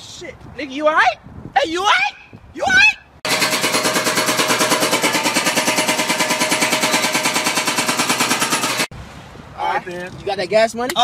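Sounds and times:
jackhammer hammering: 3.2s - 8.9s.

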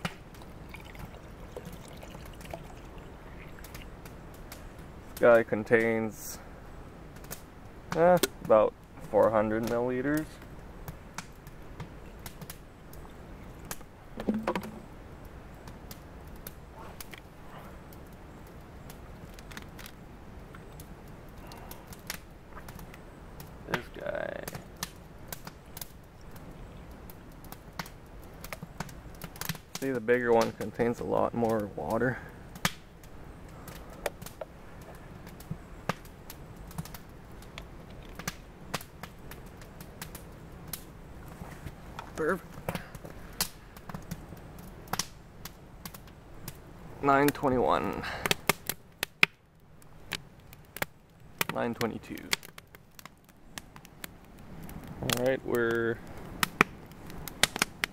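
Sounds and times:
low steady background noise: 0.0s - 57.9s
knock and rattle: 14.2s - 14.8s
plastic bottles clicking and rustling: 14.2s - 14.8s
sharp clicks and snaps: 50.1s - 57.9s.

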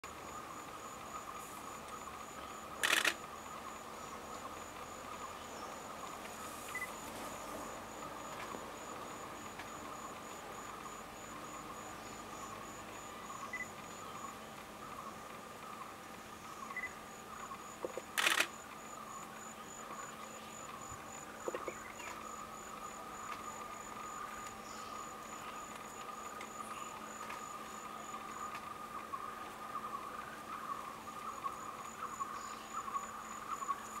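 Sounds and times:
insect drone: 0.0s - 34.0s
high-pitched pulsing insect trill: 6.7s - 14.4s.

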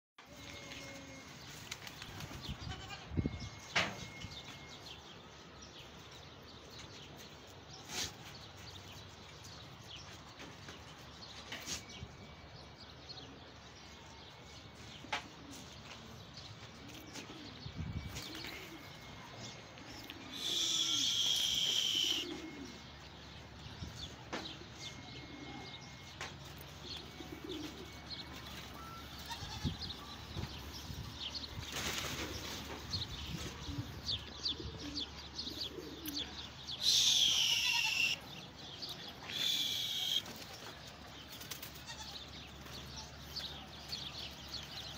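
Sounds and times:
pigeons cooing: 16.7s - 23.6s, 24.6s - 29.3s, 31.4s - 40.9s
high thin squeal: 20.4s - 22.4s.

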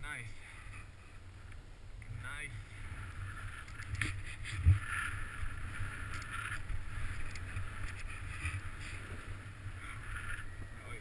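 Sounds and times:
wind rumbling on microphone: 0.0s - 11.0s
sliding over snow: 2.5s - 11.0s.

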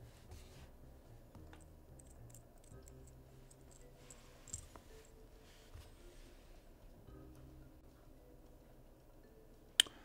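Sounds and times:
small metal parts clicking: 2.0s - 3.9s.

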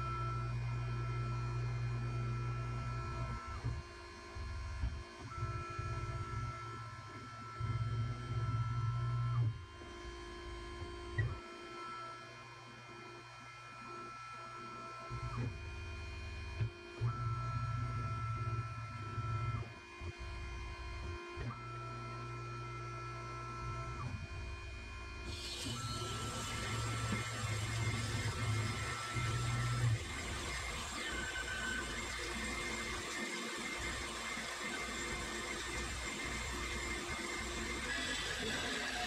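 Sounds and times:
band saw motor hum: 25.2s - 39.0s
high-pitched saw whine: 25.3s - 39.0s.

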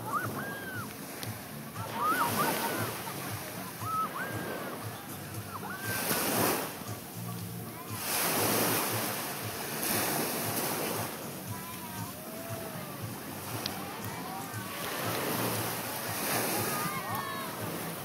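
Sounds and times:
surf washing onto beach: 0.0s - 18.0s
wind: 0.0s - 18.0s
short high whistled calls: 3.8s - 4.7s.

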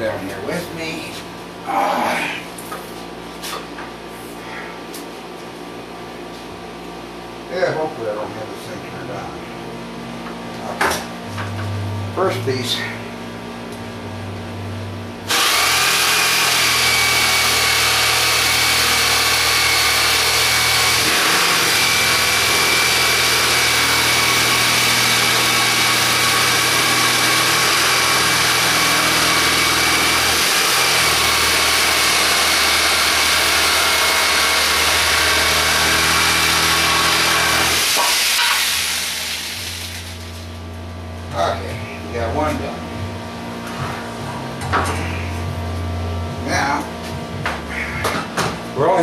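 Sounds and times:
electric saw cutting wood: 15.2s - 40.5s.

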